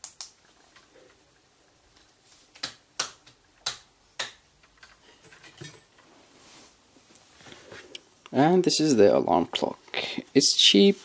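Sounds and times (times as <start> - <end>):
sharp clicks and taps: 2.6 - 4.9.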